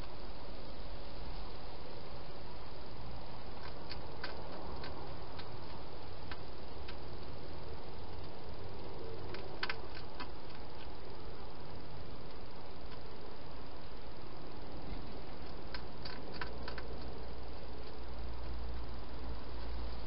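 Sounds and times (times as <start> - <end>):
steady hiss: 0.0 - 20.0
hedgehog chewing clicks: 3.6 - 7.4, 9.2 - 10.9, 14.9 - 18.6.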